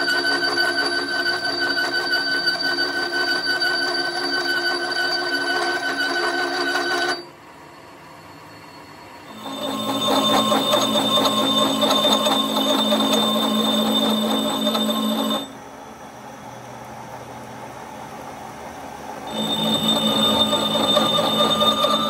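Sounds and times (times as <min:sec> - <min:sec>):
gear cutter metallic whine: 0:00.0 - 0:15.8, 0:19.2 - 0:22.0.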